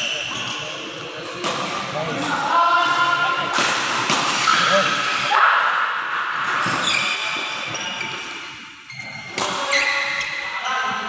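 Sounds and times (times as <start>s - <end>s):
sports shoes squeaking: 0.0s - 1.2s, 6.6s - 11.0s
racket hitting shuttlecock: 1.4s - 5.3s, 9.3s - 9.7s.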